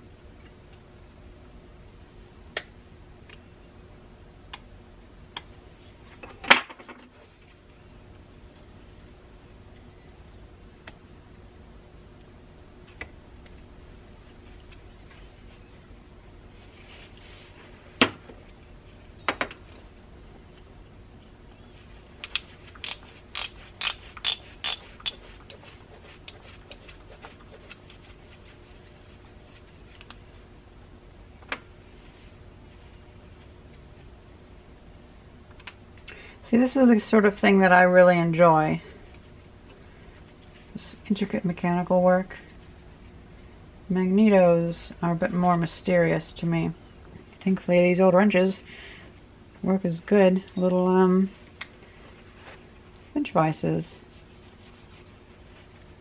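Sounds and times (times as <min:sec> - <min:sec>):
small metal parts clicking: 0:22.2 - 0:25.2.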